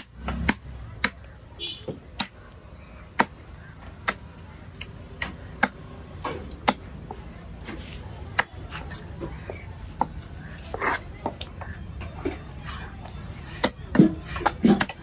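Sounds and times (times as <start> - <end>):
knife chopping on wooden block: 1.9 - 2.4.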